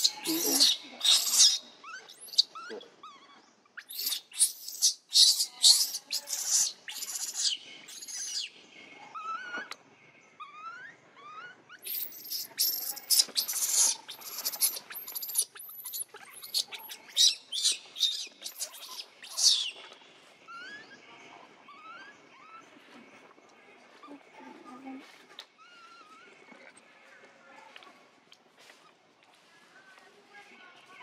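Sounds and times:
baby monkey screaming: 0:00.0 - 0:08.5, 0:09.2 - 0:09.8, 0:10.4 - 0:19.8, 0:20.5 - 0:20.9, 0:21.7 - 0:22.6.

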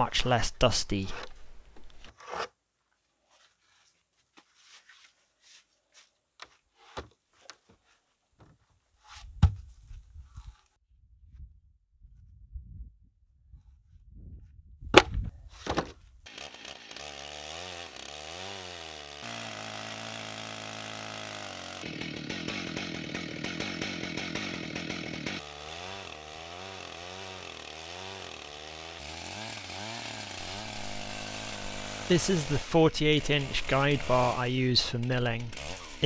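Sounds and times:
chainsaw running: 0:16.2 - 0:36.0.

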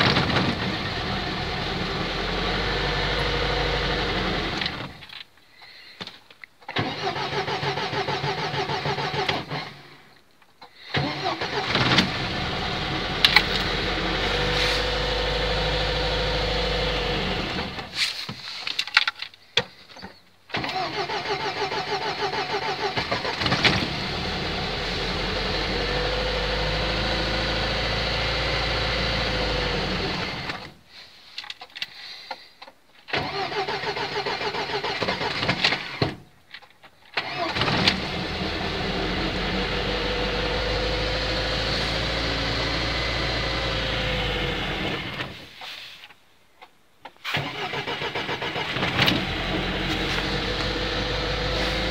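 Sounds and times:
car starter cranking: 0:06.6 - 0:09.6, 0:10.9 - 0:15.9, 0:20.5 - 0:25.2, 0:33.1 - 0:36.2, 0:37.1 - 0:39.4, 0:47.2 - 0:51.9
engine running unevenly: 0:49.0 - 0:51.9.

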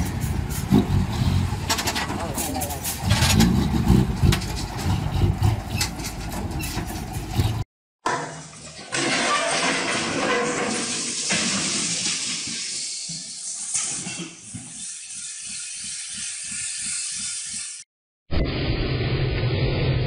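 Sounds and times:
diesel engine rumbling: 0:00.0 - 0:07.7.

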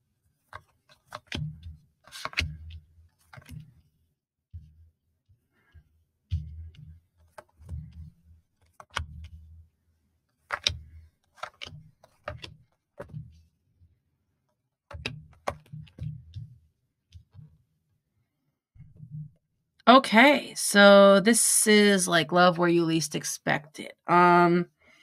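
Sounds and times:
cards shuffled on a table: 0:00.5 - 0:03.8, 0:07.2 - 0:09.4, 0:10.4 - 0:13.4.

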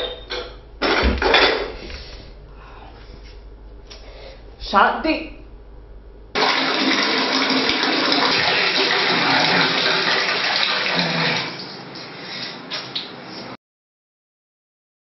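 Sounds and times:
tap water running into bucket: 0:06.4 - 0:12.1.

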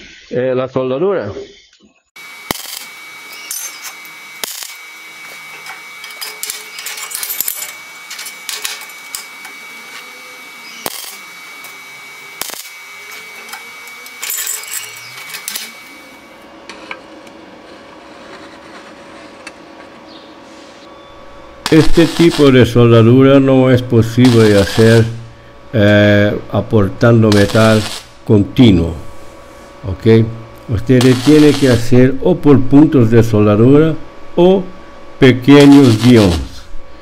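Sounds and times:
welding arc crackling and popping: 0:02.2 - 0:19.6, 0:21.4 - 0:29.0, 0:30.2 - 0:32.2, 0:35.5 - 0:36.6
faint steady hum: 0:02.2 - 0:37.0.

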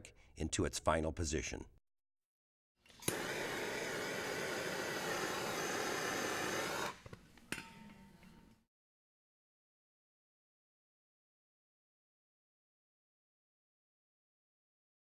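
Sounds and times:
torch ignition click: 0:03.0 - 0:03.4
gas torch hissing: 0:03.0 - 0:07.0.

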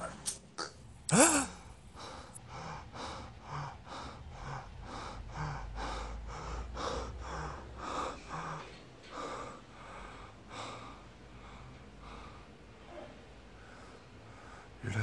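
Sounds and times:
person gasping loudly: 0:01.1 - 0:08.7
person breathing hard and fast: 0:01.1 - 0:14.8.

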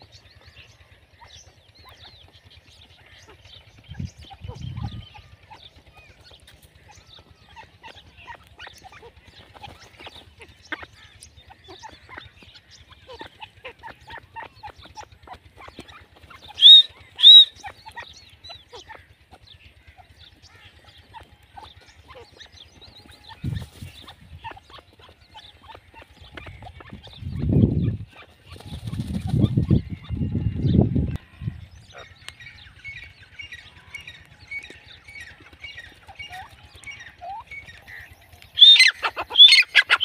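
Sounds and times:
francolin high calls: 0:16.4 - 0:19.2, 0:31.9 - 0:40.0.

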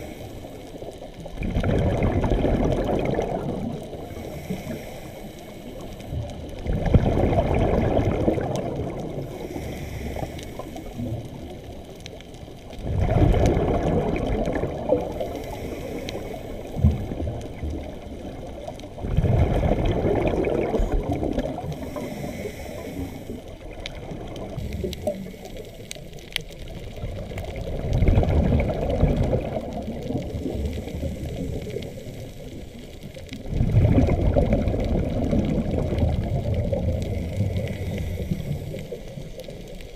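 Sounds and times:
regulator inhale hiss: 0:00.0 - 0:01.1, 0:03.9 - 0:06.3, 0:09.2 - 0:11.4, 0:15.1 - 0:17.2, 0:21.6 - 0:23.6, 0:24.6 - 0:26.3, 0:30.3 - 0:33.2, 0:37.1 - 0:39.4
exhaust bubbles rushing: 0:01.4 - 0:03.9, 0:06.6 - 0:09.2, 0:12.8 - 0:15.2, 0:19.0 - 0:21.8, 0:27.0 - 0:30.6, 0:33.4 - 0:37.6.

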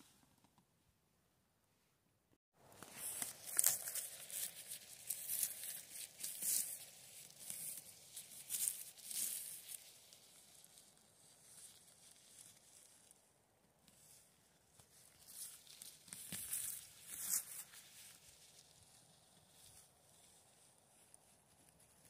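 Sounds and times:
plastic bag crinkling: 0:02.8 - 0:10.7.

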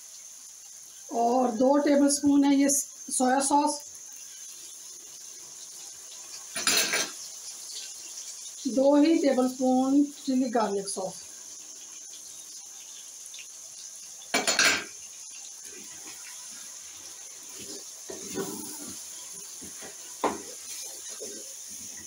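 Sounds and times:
spoon scraping a cooking pan: 0:06.4 - 0:07.3, 0:17.5 - 0:22.0.

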